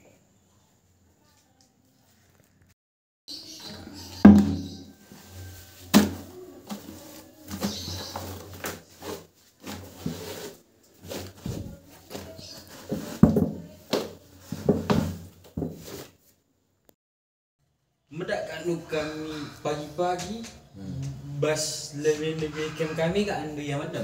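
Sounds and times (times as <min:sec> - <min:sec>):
knocks against tub: 0:04.3 - 0:04.8.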